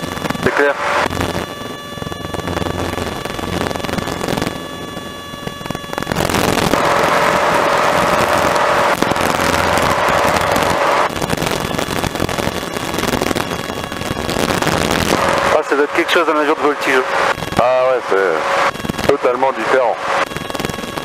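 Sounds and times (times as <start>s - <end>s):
aircraft engine droning: 0.0s - 21.0s.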